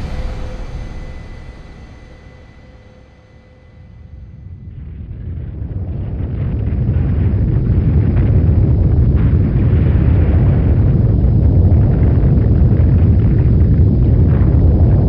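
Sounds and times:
deep rumbling roar: 0.0s - 5.8s.

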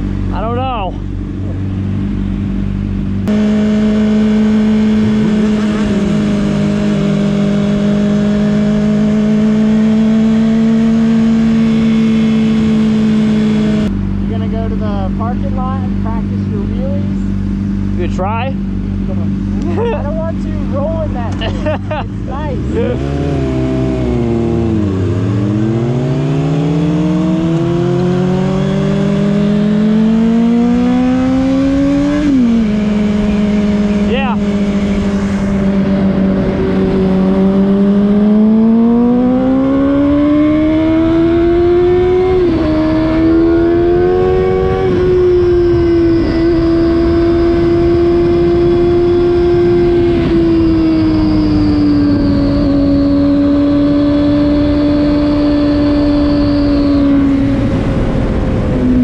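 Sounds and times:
motorcycle engine at high revs: 0.0s - 59.0s
second engine rising and falling: 0.0s - 59.0s
wind rushing past: 42.3s - 59.0s.

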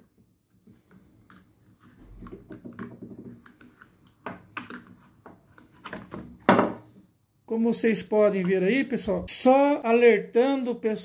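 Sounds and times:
clicks and scrapes of plastic: 0.0s - 6.4s.

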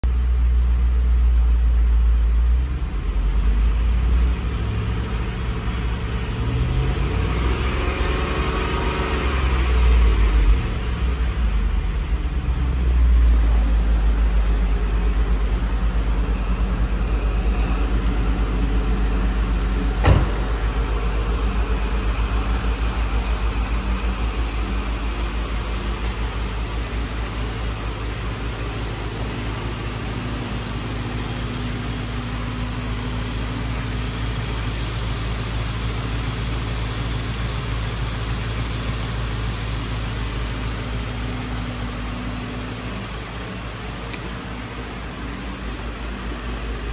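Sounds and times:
car engine idling: 0.0s - 46.9s
sharp knock: 20.0s - 20.5s.

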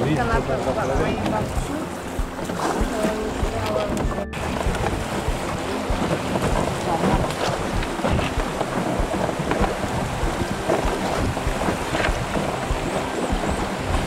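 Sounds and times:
river rushing and splashing: 0.0s - 14.0s
wind buffeting microphone: 0.0s - 14.0s.

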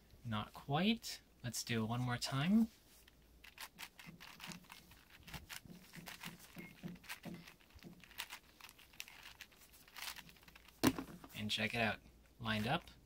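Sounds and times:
puzzle cube clicking: 3.4s - 11.2s.

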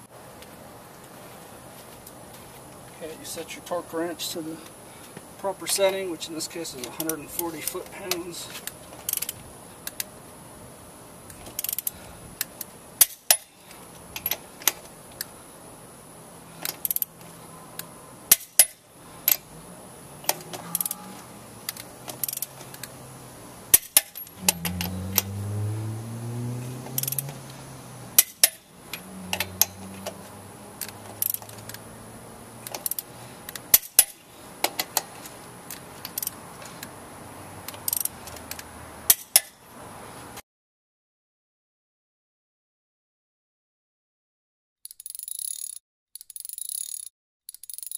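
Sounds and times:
torque wrench clicking: 9.1s - 10.1s, 11.5s - 13.5s, 16.6s - 17.1s, 20.3s - 21.0s, 21.6s - 23.0s, 27.0s - 27.4s, 28.2s - 30.2s, 30.8s - 31.8s, 32.6s - 35.1s, 36.0s - 36.4s, 37.7s - 39.5s, 44.8s - 47.9s.

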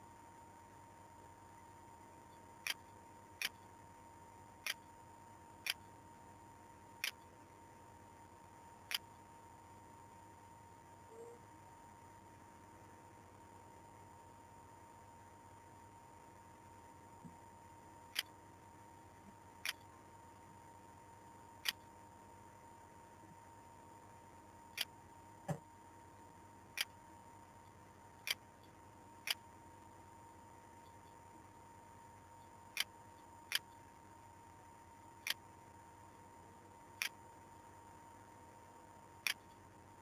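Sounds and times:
faint steady tone and hiss: 0.0s - 40.0s.

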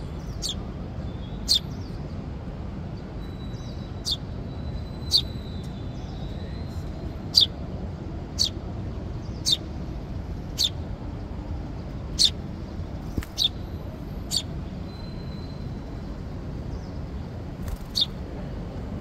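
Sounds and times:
sparrow fledgling chirping: 0.2s - 2.1s, 3.2s - 7.6s, 8.3s - 11.3s, 12.0s - 16.0s, 16.7s - 18.2s.

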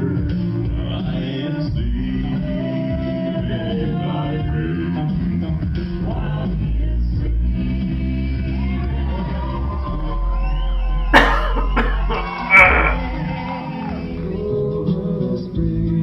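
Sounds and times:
a cappella group singing: 0.0s - 16.0s
deep bass voice: 5.9s - 7.8s, 11.6s - 13.4s.

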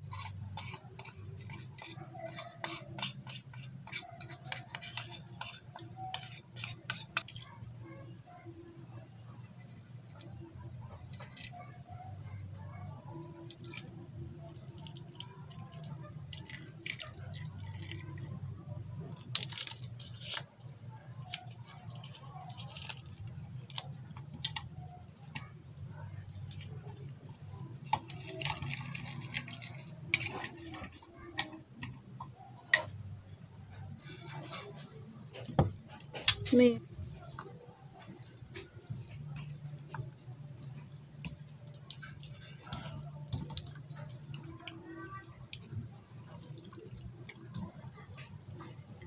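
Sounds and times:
spoon scraping bowl: 0.0s - 7.6s, 27.9s - 31.6s.

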